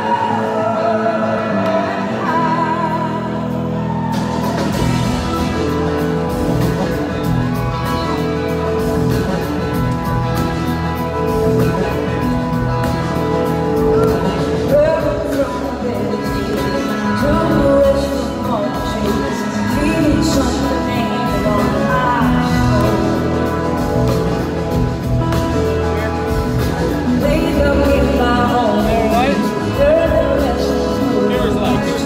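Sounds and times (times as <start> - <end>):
woman singing: 0.0 - 4.0, 13.8 - 24.2, 27.1 - 32.0
drums: 0.0 - 32.0
live band playing soul-rock: 0.0 - 32.0.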